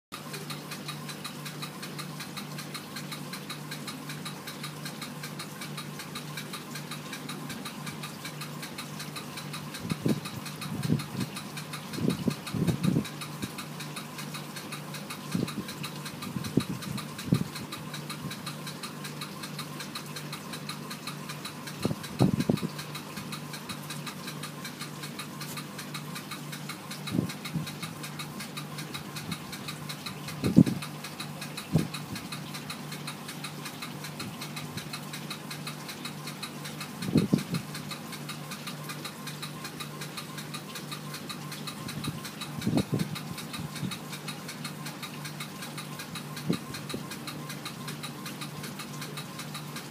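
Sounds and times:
aquarium pump humming: 0:00.1 - 0:49.9.

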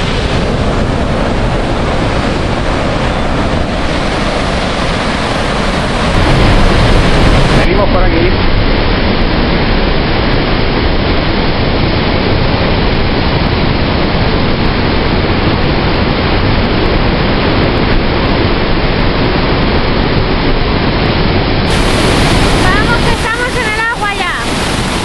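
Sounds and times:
waterfall rushing over rocks: 0:00.0 - 0:25.0.

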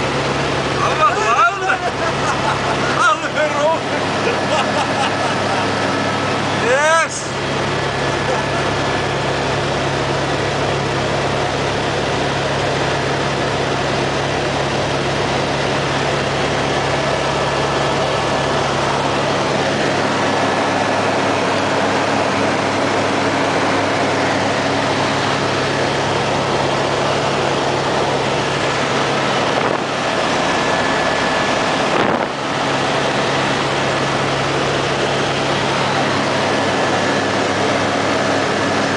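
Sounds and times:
helicopter engine and rotor: 0:00.0 - 0:38.9.

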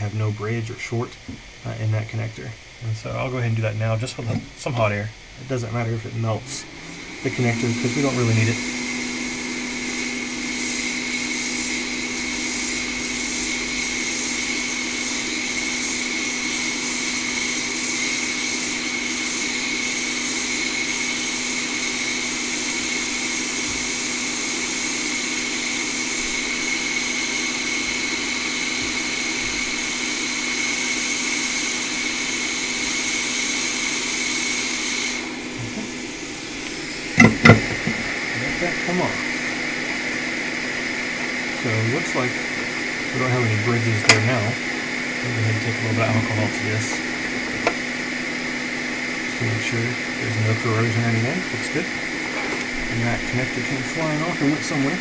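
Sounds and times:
hot air station hiss and whine: 0:00.0 - 0:55.0
sharp knocks: 0:37.2 - 0:38.1.

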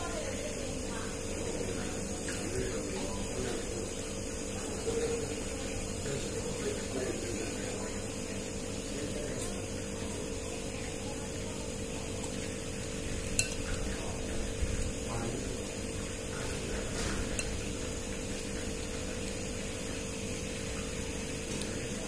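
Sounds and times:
steady hum: 0:00.0 - 0:22.0
spoon clinking against bowl: 0:13.2 - 0:14.0.

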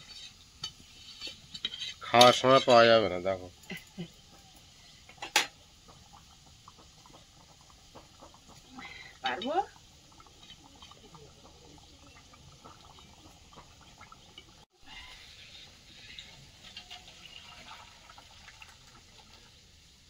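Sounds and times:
curry bubbling in pan: 0:00.0 - 0:20.0
curry poured into steel bowl: 0:14.9 - 0:19.5.

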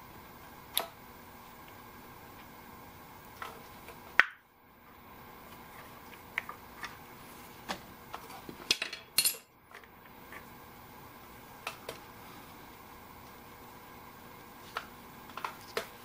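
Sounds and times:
metal parts and tools clinking: 0:08.7 - 0:09.5.

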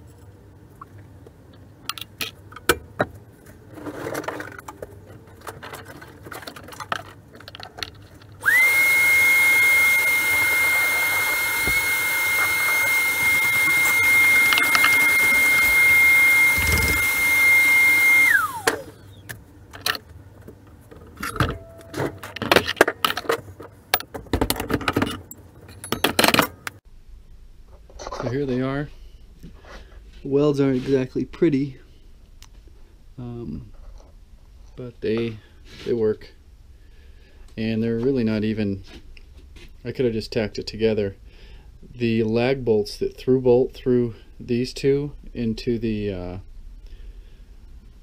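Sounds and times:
clatters and knocks of handling: 0:00.9 - 0:08.4, 0:19.3 - 0:26.8
shop vacuum motor whine: 0:08.4 - 0:19.0.

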